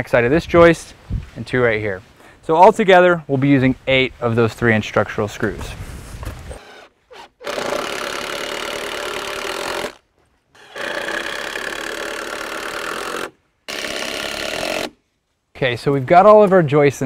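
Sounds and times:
impact driver driving screws into wood: 6.2 - 10.0, 10.6 - 15.0.

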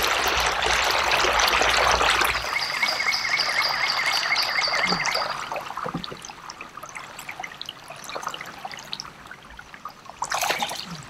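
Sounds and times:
fish thrashing and splashing: 10.2 - 11.0.

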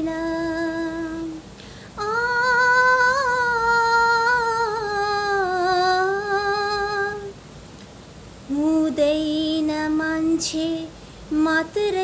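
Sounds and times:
woman singing unaccompanied: 0.0 - 7.4, 8.5 - 12.0
woman breathing: 1.5 - 2.0.

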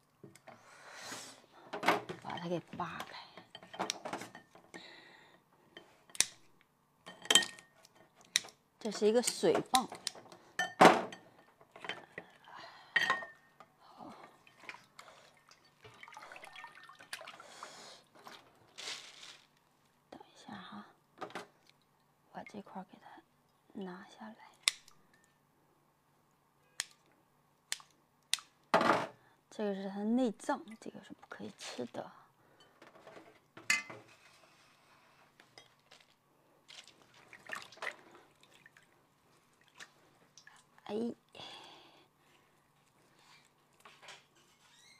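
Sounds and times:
water splashing in a metal bowl: 14.3 - 17.4, 36.7 - 39.0, 39.6 - 40.7
liquid dripping: 14.3 - 17.5
wet squelching clicks: 24.6 - 25.0, 27.7 - 28.7.

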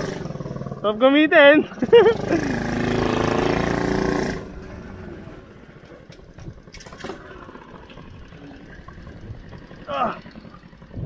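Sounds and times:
go-kart engine running: 0.0 - 11.0.

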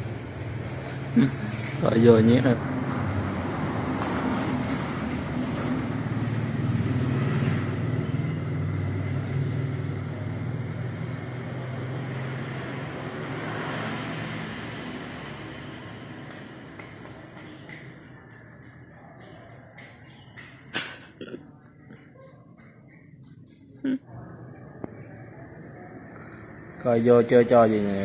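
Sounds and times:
vehicle engine humming: 0.0 - 28.0.

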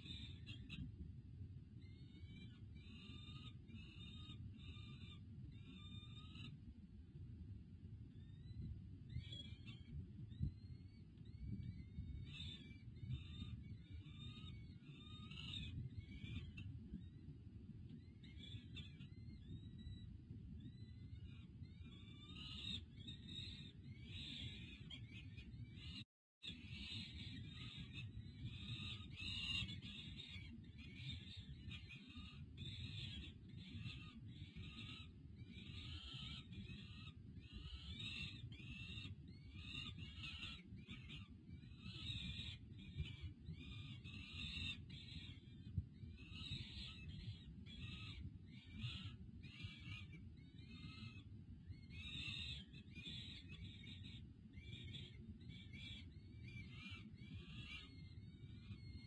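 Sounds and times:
falcon chicks begging calls: 31.9 - 41.2.

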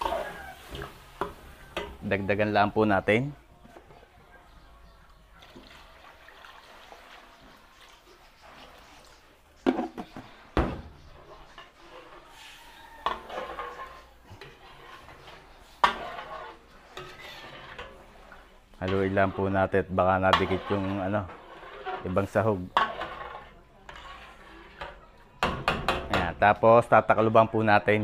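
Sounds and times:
metal cookware clanks: 0.0 - 2.1, 9.6 - 12.2, 13.0 - 26.6.

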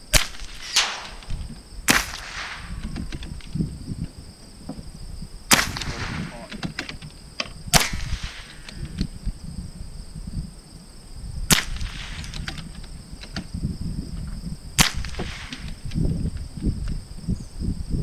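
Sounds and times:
rifle shots: 0.1 - 2.8, 5.5 - 6.6, 7.7 - 8.6, 11.5 - 12.4, 14.8 - 15.6.

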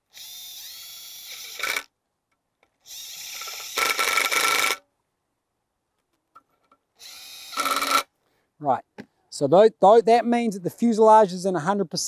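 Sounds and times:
cordless drill whining: 0.1 - 1.9, 2.8 - 4.8, 7.0 - 8.1.

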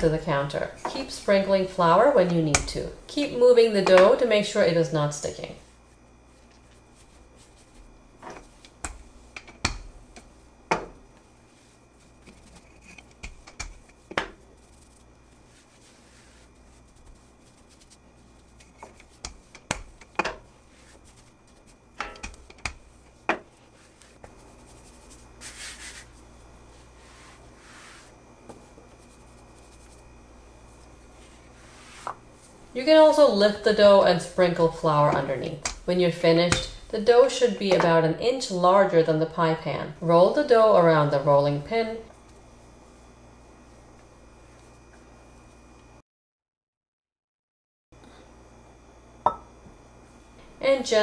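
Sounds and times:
rolling pin rubbing dough: 0.0 - 37.4
rolling pin knocking: 8.2 - 11.0, 13.0 - 14.4, 18.8 - 20.5, 21.9 - 23.5.

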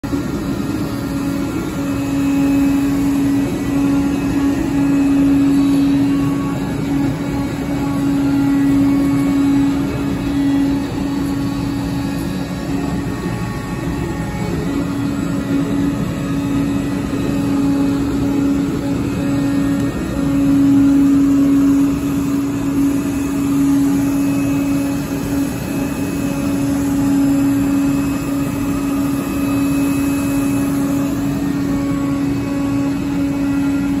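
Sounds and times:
cutting machine humming: 0.0 - 34.0.

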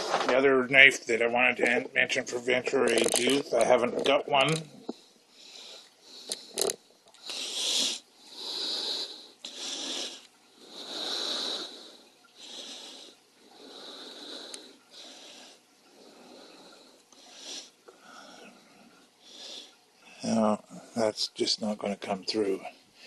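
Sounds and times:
person breathing heavily: 5.4 - 19.7.

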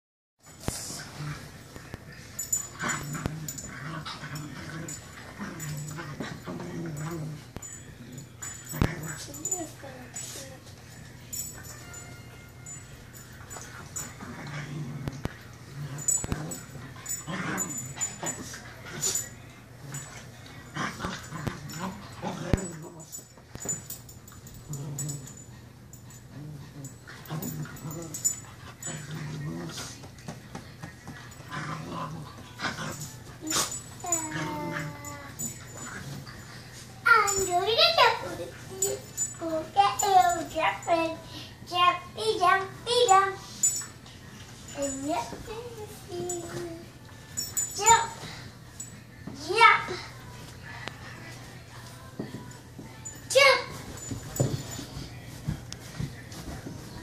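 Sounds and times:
dog growling: 2.6 - 9.8, 14.1 - 23.1, 24.6 - 25.4, 26.3 - 30.0, 31.4 - 36.5
dog whining and grumbling: 31.4 - 36.4.

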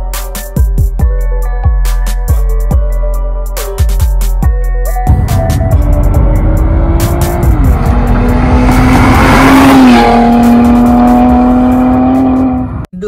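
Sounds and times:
rush of noise: 5.1 - 11.2
car engine at high revs: 5.1 - 12.9.

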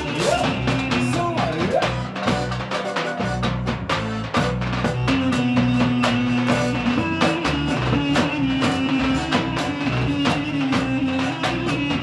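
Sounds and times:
fast dance drum beat: 0.0 - 12.0.

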